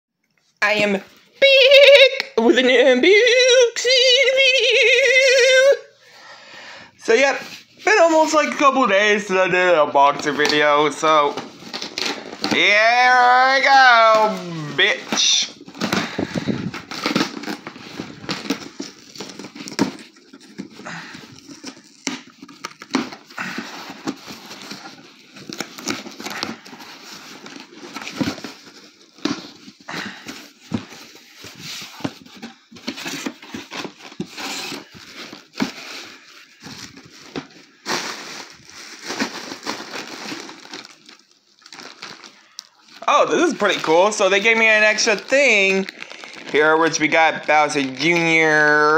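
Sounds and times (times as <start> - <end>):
cardboard rustling and scraping: 10.2 - 42.0.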